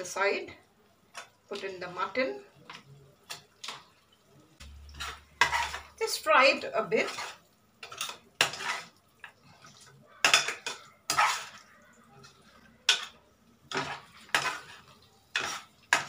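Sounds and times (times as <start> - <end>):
spoon scraping a pot: 4.6 - 16.0.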